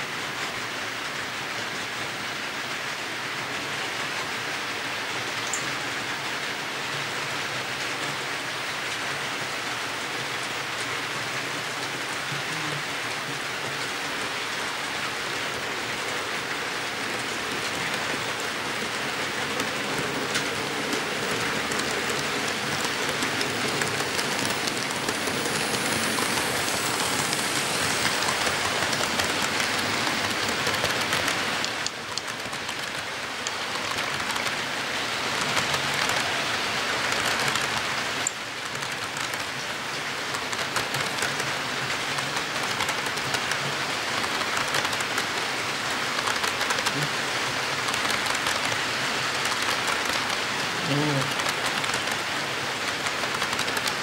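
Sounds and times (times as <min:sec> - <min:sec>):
model train wheels hissing on rail: 0:00.1 - 0:54.0.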